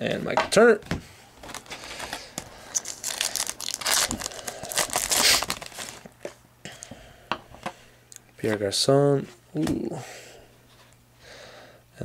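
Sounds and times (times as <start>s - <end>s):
foil wrapper crinkling and tearing: 1.4s - 6.2s.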